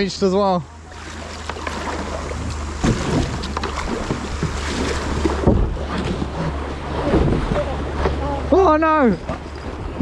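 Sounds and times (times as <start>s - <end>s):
rushing water: 0.0s - 10.0s
paddle splashes and knocks: 0.9s - 10.0s
wind on microphone: 2.1s - 8.5s.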